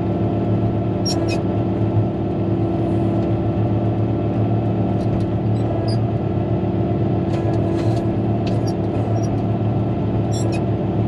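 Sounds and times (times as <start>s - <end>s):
diesel engine running: 0.0s - 11.0s
high-pitched squeaks: 10.3s - 10.6s.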